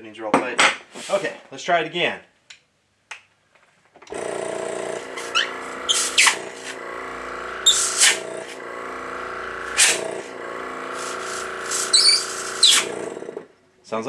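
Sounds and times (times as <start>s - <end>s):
air compressor humming: 4.1s - 13.6s
brief sharp noises: 11.0s - 13.1s.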